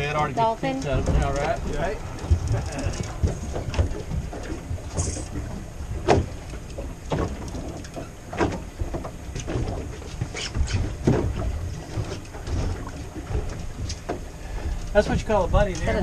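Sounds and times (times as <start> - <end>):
knocks and thuds on boat: 0.0 - 16.0
wind and sea rumble: 0.0 - 16.0.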